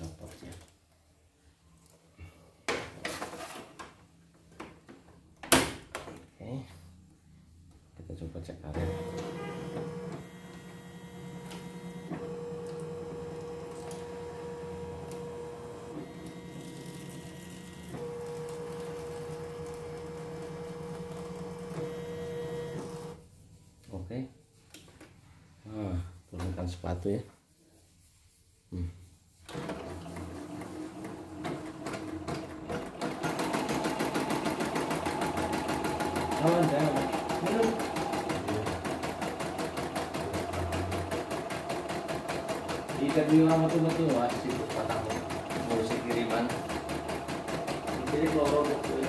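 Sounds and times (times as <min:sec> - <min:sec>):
embroidery machine whirring: 0:08.8 - 0:23.2, 0:29.5 - 0:49.0.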